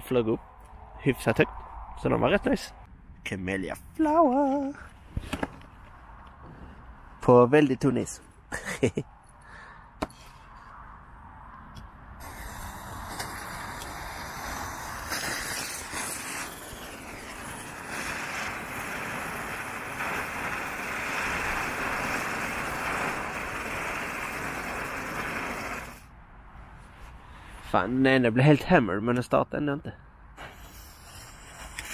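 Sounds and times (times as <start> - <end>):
fireworks hissing fizz: 12.2 - 26.1, 30.4 - 31.9.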